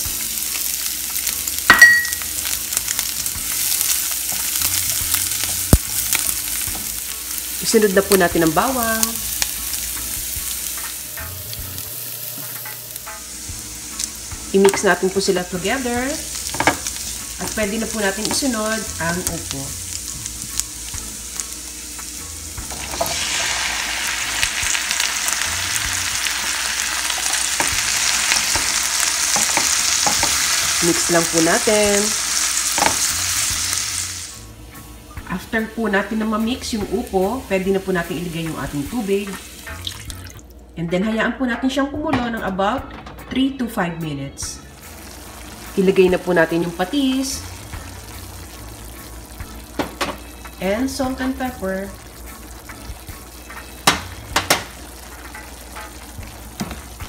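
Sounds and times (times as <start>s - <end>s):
shallots sizzling in oil: 0.0s - 40.6s, 44.5s - 57.0s
sharp ringing clink: 1.7s - 2.2s.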